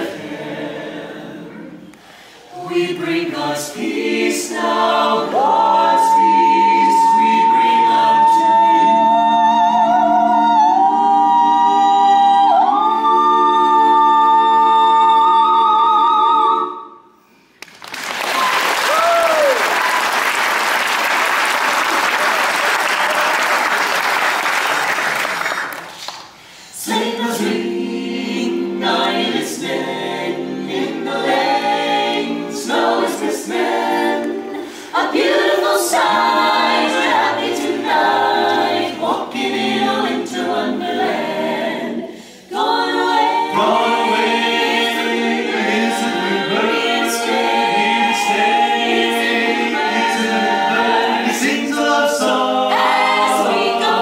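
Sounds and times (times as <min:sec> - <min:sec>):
a cappella choir singing a carol: 0:00.0 - 0:17.4, 0:26.4 - 0:54.0
audience applauding: 0:17.6 - 0:26.4
person whooping: 0:18.2 - 0:20.2.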